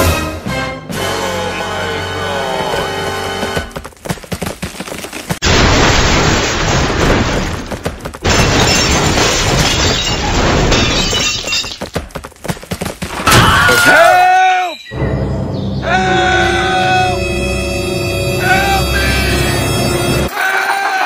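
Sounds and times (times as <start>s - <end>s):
crashing and shattering: 4.6s - 12.0s.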